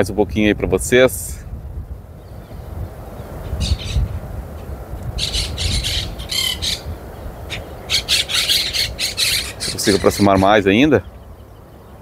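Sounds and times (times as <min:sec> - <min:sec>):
birds squawking: 0:03.4 - 0:11.6.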